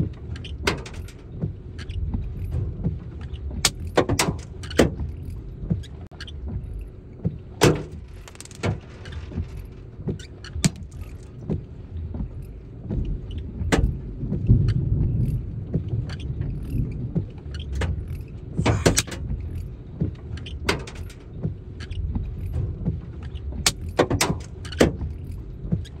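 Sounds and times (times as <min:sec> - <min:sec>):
wind buffeting microphone: 0:07.4 - 0:20.7.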